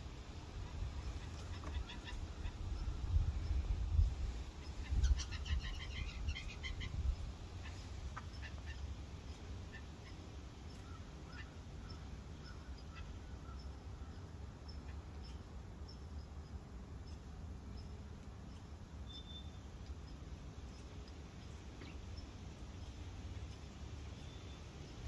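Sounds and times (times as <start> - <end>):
blue jay harsh calls: 0.6 - 3.8, 4.6 - 16.1
short bird chirps: 19.0 - 19.6.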